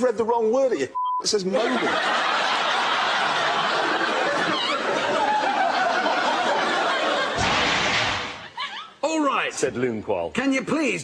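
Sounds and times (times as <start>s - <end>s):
studio audience laughing: 1.5s - 9.0s.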